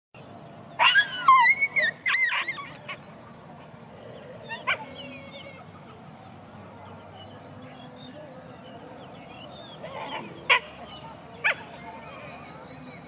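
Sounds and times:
dogs whining and yelping: 0.8 - 3.0, 4.0 - 5.9.

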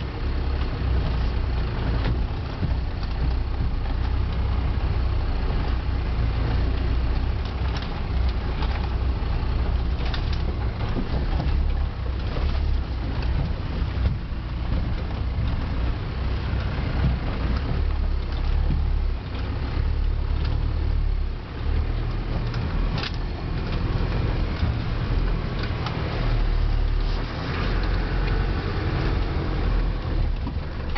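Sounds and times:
diesel engine running at low revs: 0.0 - 30.9
vehicle knocking over rocks: 7.3 - 16.0.

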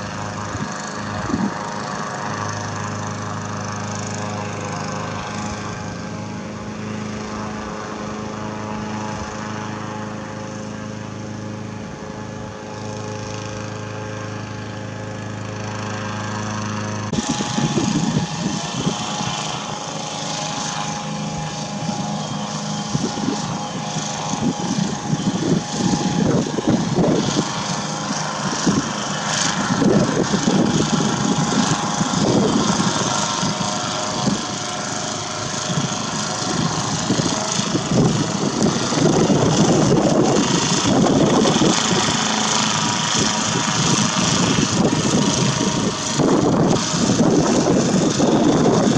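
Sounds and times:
boat propeller motor drone: 0.0 - 48.9
wind rumble on microphone: 0.2 - 1.8, 17.1 - 19.6, 21.2 - 48.9.

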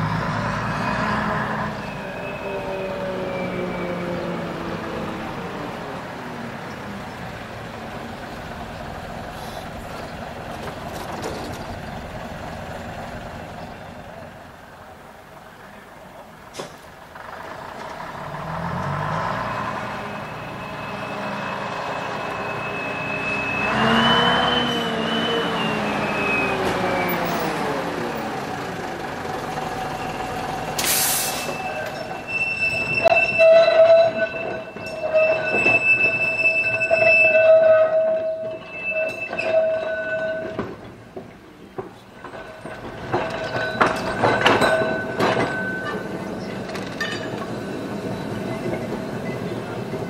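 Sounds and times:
tram wheels squealing: 0.0 - 14.3, 17.2 - 28.6, 29.3 - 50.0
tram motor whine: 0.0 - 15.6, 16.9 - 50.0
clicks and knocks from track: 40.3 - 47.6.

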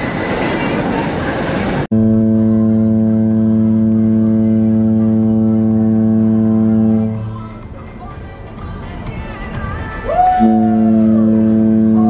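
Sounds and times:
ship horn long deep blast: 1.9 - 7.4, 10.4 - 12.0.

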